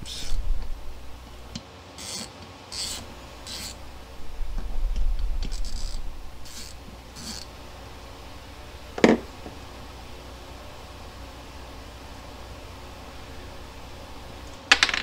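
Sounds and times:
low handling rumble: 0:00.0 - 0:01.5, 0:03.0 - 0:14.5
wrench scraping screws: 0:02.0 - 0:03.8, 0:05.5 - 0:07.5.

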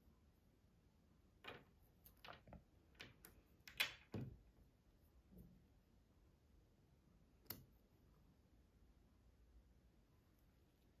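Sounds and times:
plastic toy pieces clicking on table: 0:01.4 - 0:04.3.

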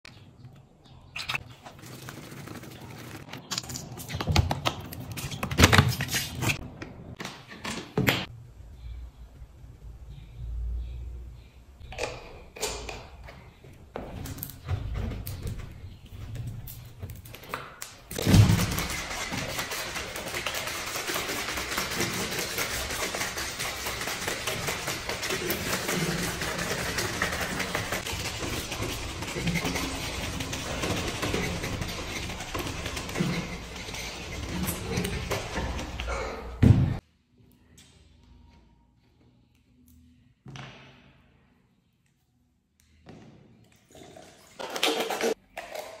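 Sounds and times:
cola sloshing in shaken bottle: 0:18.4 - 0:35.8, 0:43.9 - 0:46.0.

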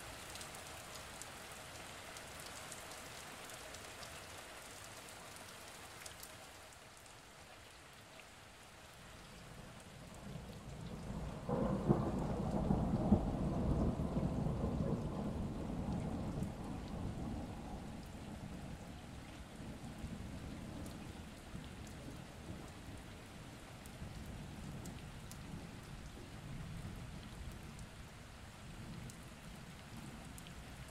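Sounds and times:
steady rain: 0:00.0 - 0:30.9
thunder rolling: 0:11.0 - 0:18.4.

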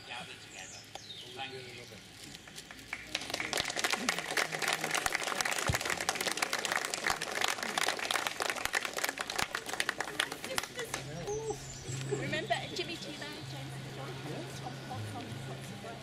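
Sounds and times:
voices: 0:00.0 - 0:16.0
crowd applauding: 0:02.4 - 0:12.2.

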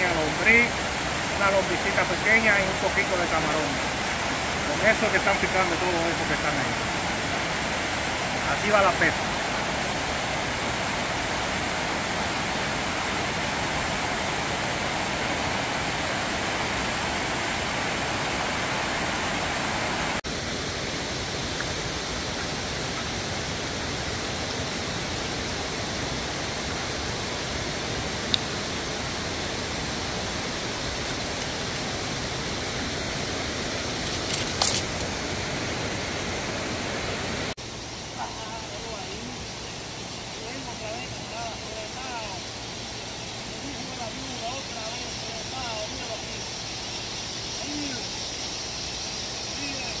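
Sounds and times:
water pouring over spillway: 0:00.0 - 0:20.2.

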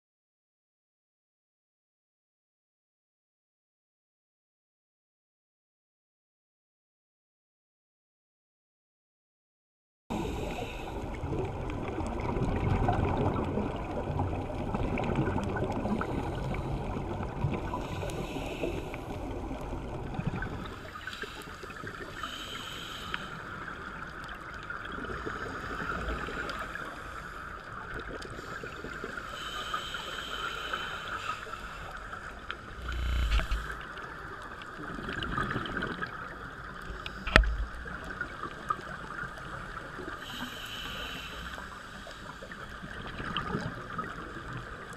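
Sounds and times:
muffled underwater rush: 0:10.1 - 0:44.9
exhaled bubbles: 0:11.0 - 0:21.0, 0:32.3 - 0:40.1
regulator breaths: 0:28.4 - 0:33.9.

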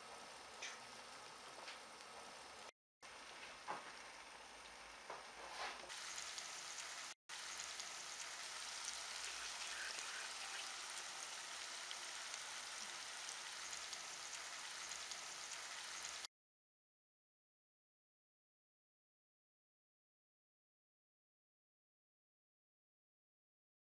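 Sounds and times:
sausages sizzling in a frying pan: 0:00.0 - 0:16.3.

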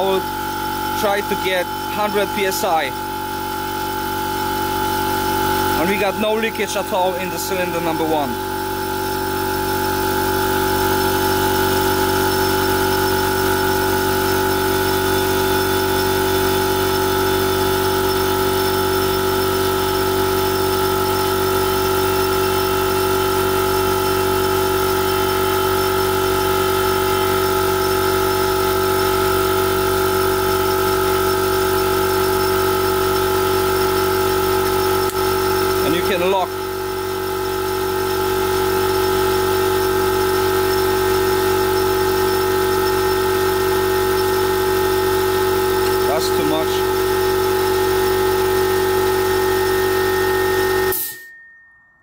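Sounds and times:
air compressor running: 0:00.0 - 0:51.3.

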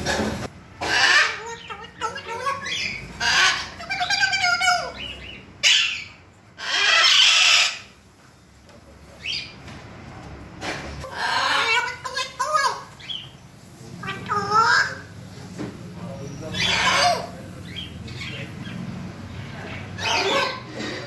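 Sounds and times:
parrot squawking and warbling: 0:00.8 - 0:08.0, 0:11.0 - 0:13.2, 0:14.0 - 0:15.1, 0:16.5 - 0:20.9.

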